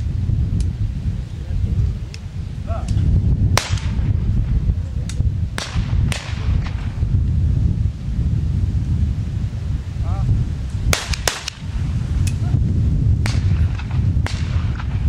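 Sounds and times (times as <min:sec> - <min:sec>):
wind rumble on microphone: 0:00.0 - 0:15.0
shotgun shots: 0:03.6 - 0:04.1, 0:05.6 - 0:07.0, 0:10.9 - 0:11.7, 0:13.2 - 0:15.0.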